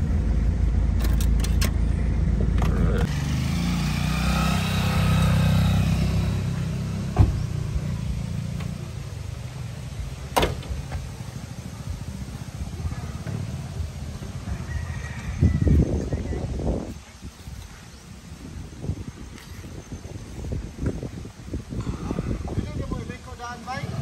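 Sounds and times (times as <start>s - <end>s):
motor vehicle engine rumble: 0.0s - 24.0s.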